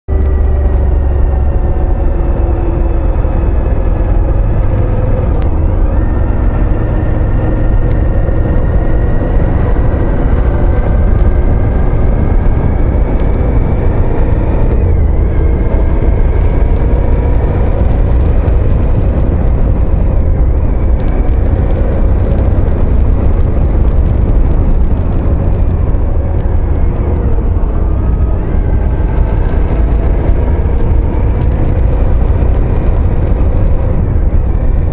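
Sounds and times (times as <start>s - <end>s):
motorcycle engine: 0.1s - 34.9s
wind on microphone: 0.1s - 34.9s.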